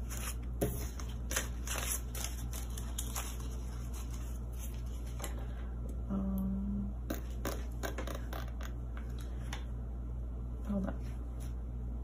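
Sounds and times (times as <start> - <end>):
paper banknotes rustling: 0.0 - 5.2.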